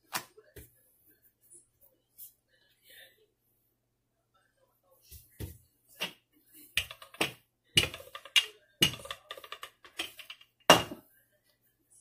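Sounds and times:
rolling pin knocking on countertop: 6.8 - 11.0.

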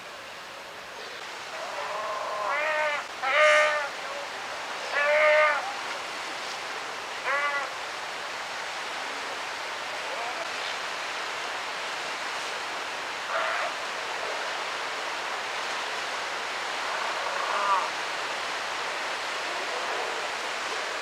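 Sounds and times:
surf hissing: 0.0 - 21.0
sea lions calling: 1.5 - 4.0, 4.9 - 5.8, 7.2 - 7.8, 13.3 - 13.8, 16.8 - 18.0.

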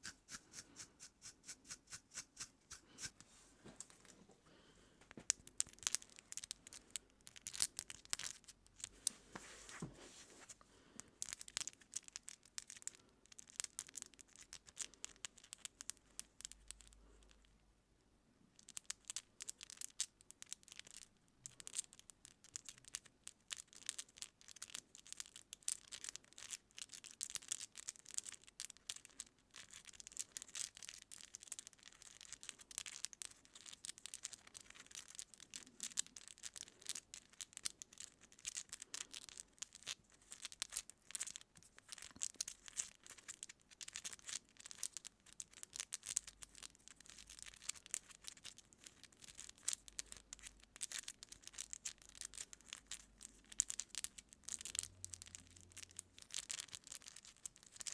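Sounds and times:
nails scratching through hair: 0.0 - 4.0.

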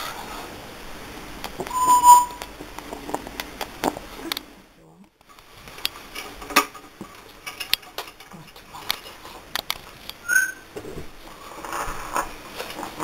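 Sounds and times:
parrot short high chirp: 1.7 - 2.4.

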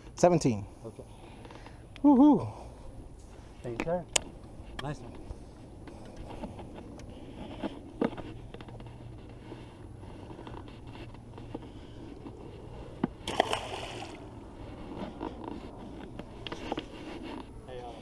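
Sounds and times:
fish splashing into water: 13.2 - 14.3.

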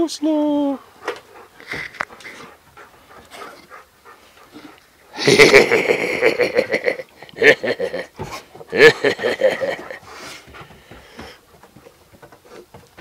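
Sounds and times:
dog panting: 0.6 - 5.2, 8.2 - 13.0.

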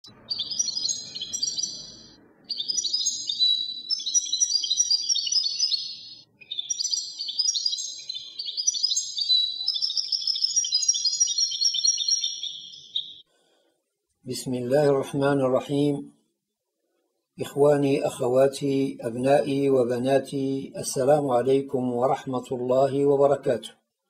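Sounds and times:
bird chirping and trilling: 0.0 - 13.3.

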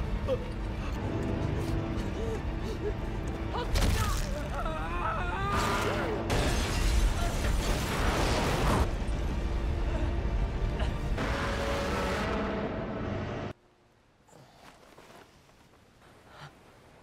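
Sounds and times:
film score music: 0.0 - 6.4, 7.0 - 13.6.

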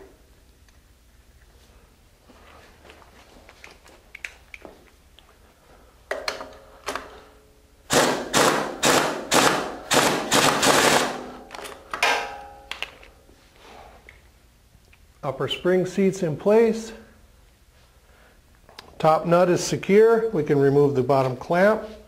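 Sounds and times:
pneumatic impact wrench bursts: 7.9 - 11.4.

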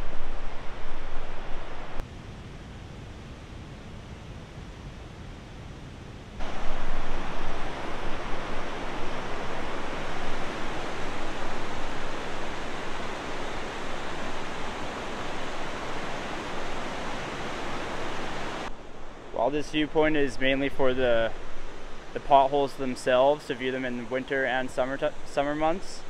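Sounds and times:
river rapids rushing: 6.4 - 25.9.

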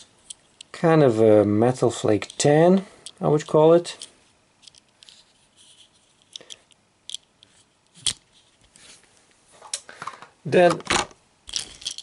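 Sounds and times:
fingers handling metal toy: 2.2 - 8.6, 11.5 - 12.0.

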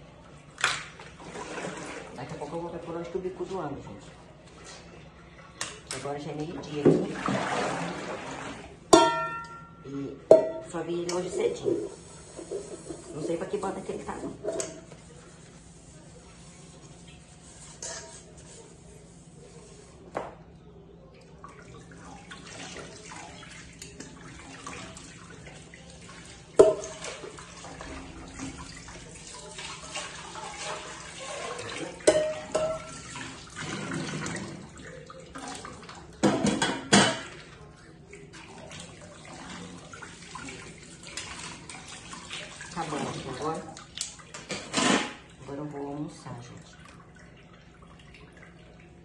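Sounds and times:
pot clanking against sink: 8.9 - 9.7, 10.3 - 10.8, 26.6 - 27.3, 31.6 - 34.7, 36.2 - 37.4
kitchen tap running: 10.3 - 18.4, 21.3 - 49.0.

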